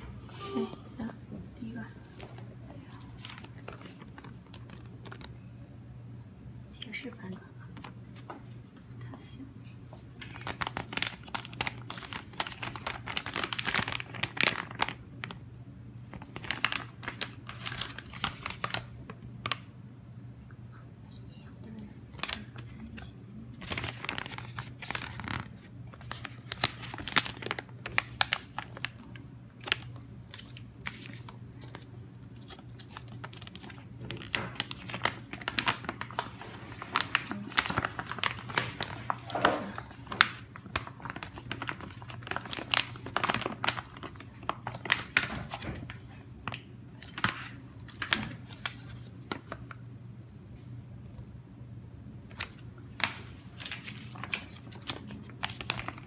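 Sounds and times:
steady low hum: 0.0s - 56.0s
plastic bags crinkling: 3.2s - 5.4s, 10.2s - 15.4s, 16.1s - 19.6s, 23.6s - 49.8s, 52.2s - 56.0s.

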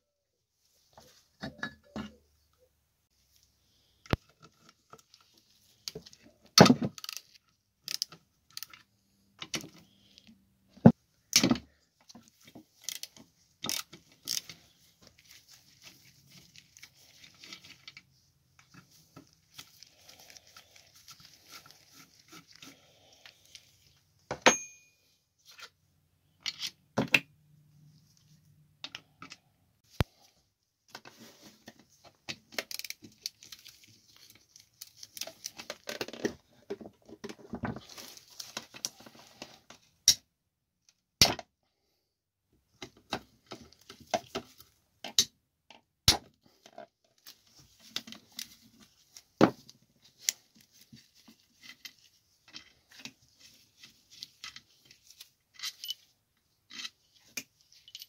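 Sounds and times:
metal tools clinking and scraping: 24.5s - 25.0s, 55.5s - 56.1s, 57.7s - 58.0s.

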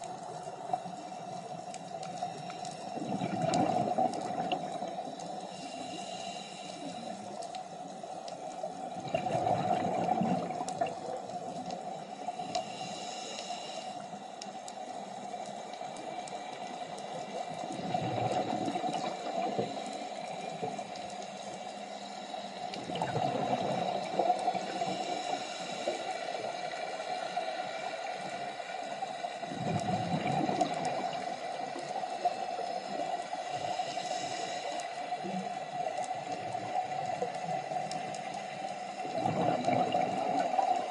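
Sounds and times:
underwater hiss: 0.0s - 40.9s
scuba exhalation bubbles gurgling: 3.0s - 5.0s, 8.9s - 11.3s, 17.7s - 19.8s, 22.8s - 25.0s, 29.5s - 31.4s, 39.0s - 40.9s.

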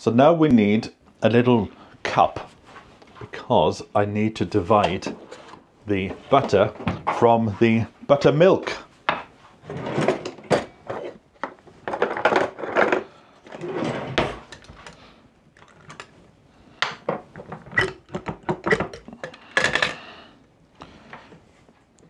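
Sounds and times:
kitchenware knocking and clinking: 17.0s - 20.0s.

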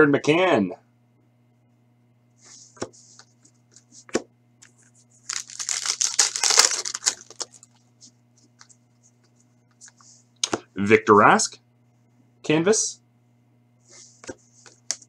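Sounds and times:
foil wrapper crackling: 5.2s - 7.8s.

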